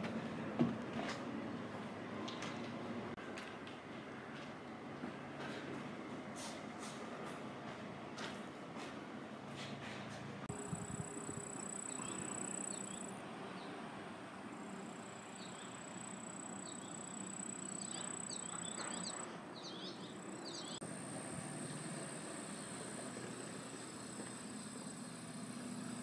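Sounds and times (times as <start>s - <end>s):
outdoor background noise: 0.0s - 26.0s
insects trilling: 10.5s - 26.0s.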